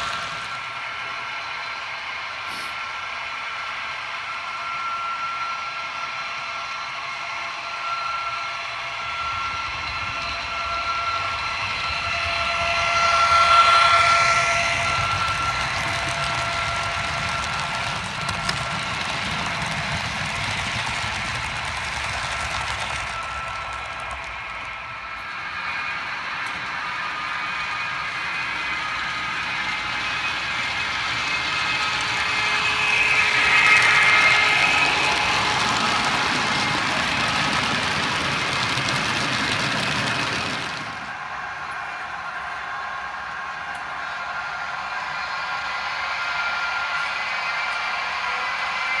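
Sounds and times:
wheels rumbling on track: 0.0 - 1.2, 9.2 - 42.7
model locomotive whine: 0.0 - 49.0.

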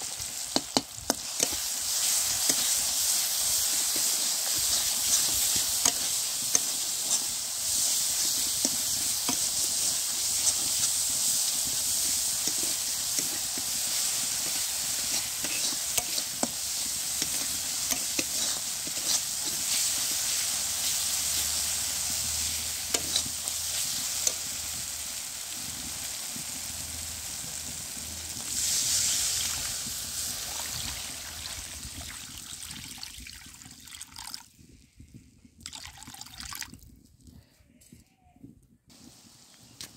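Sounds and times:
vegetables sizzling in a pan: 0.0 - 32.9
steel spatula scraping a pan: 0.5 - 24.6.

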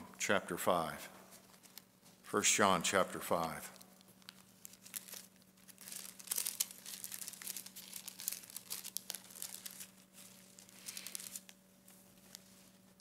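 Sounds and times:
faint steady hum: 0.0 - 13.0
thin paper pages rustling: 1.3 - 2.3, 4.0 - 13.0.

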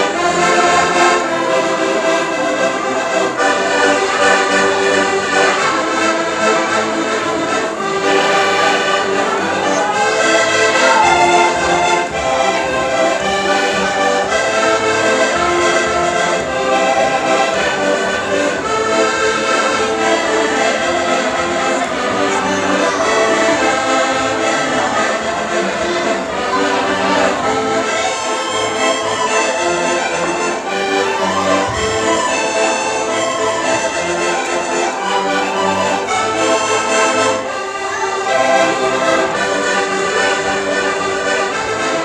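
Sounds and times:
accordions playing a tune: 0.0 - 42.0.

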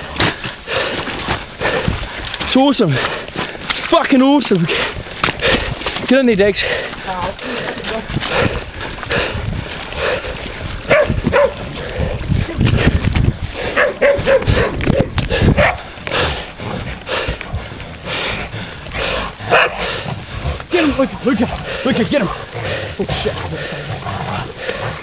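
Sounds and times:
animals scuffling: 0.0 - 25.0
dogs barking and whimpering: 10.9 - 11.7, 13.6 - 16.0, 19.0 - 20.7.

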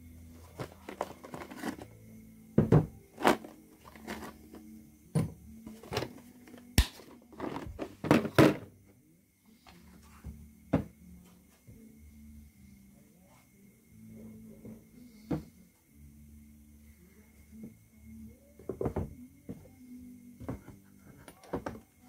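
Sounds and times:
knocks of hard objects: 2.6 - 3.5.

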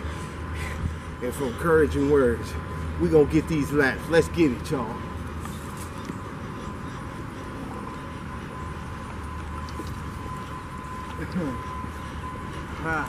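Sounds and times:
low hum: 2.4 - 13.0
faint thin whine: 7.5 - 13.0.

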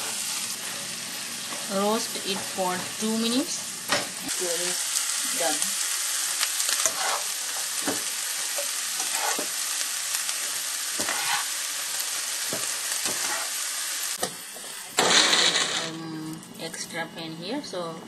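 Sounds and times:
food sizzling in hot oil: 0.0 - 16.1
spoon scraping a pan: 6.8 - 8.0, 8.6 - 9.6, 11.0 - 11.6, 13.0 - 13.6
loud burst of noise: 15.0 - 16.0.

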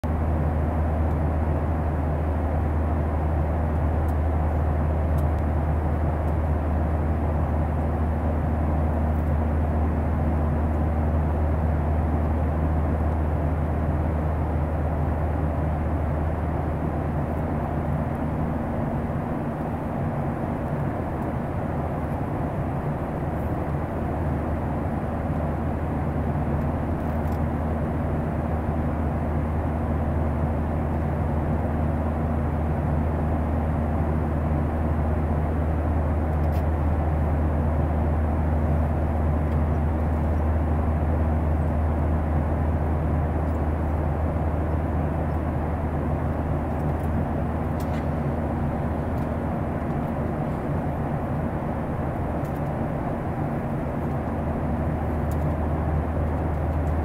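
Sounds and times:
rushing air and engine noise: 0.0 - 57.0.

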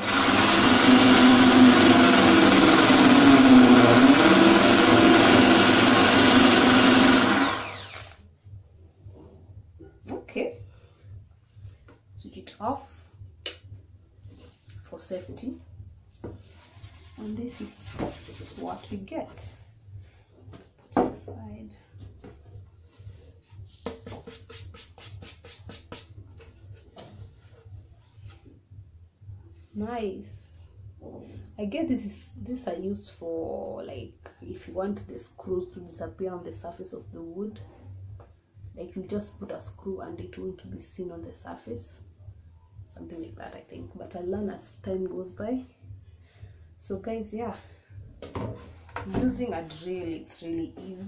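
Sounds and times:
electric drill boring wood: 0.0 - 8.2.

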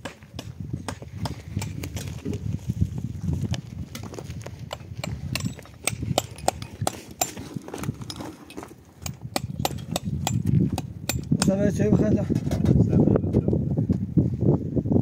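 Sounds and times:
sharp taps and knocks: 3.9 - 8.2.

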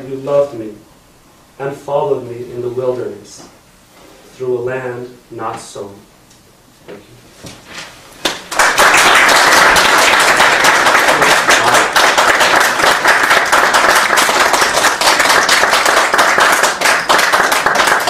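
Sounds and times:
audience applauding: 8.2 - 18.0.

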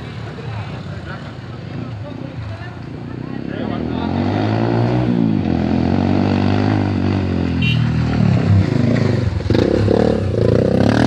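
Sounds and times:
idling vehicle engines drone: 0.0 - 4.2
motorcycle engine revving: 0.0 - 11.0.

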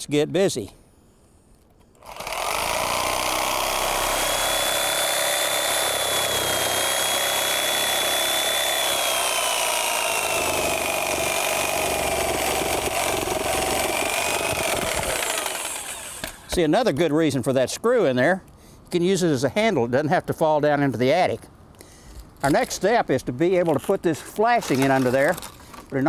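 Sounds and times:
reciprocating saw cutting roof: 2.0 - 16.6.

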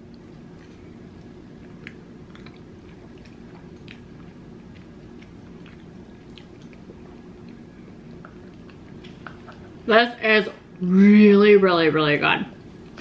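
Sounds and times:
person chewing food: 0.0 - 9.8
steady low hum: 0.0 - 13.0.

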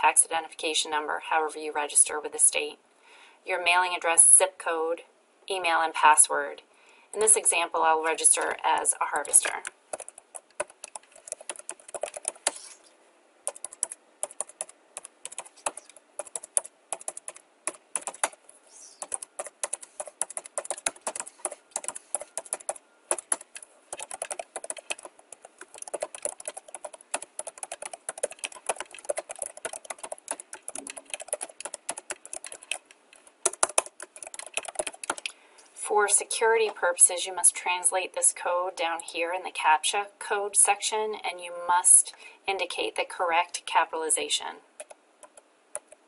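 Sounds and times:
computer keyboard typing: 8.1 - 12.8, 13.5 - 35.3, 44.8 - 46.0.

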